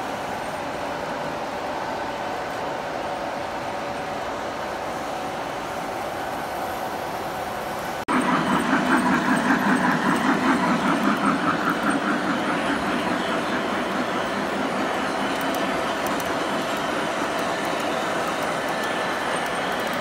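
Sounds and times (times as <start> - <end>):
pulsing rumble of passing locomotive: 0.0 - 20.0
model train wheels rumbling: 8.1 - 20.0.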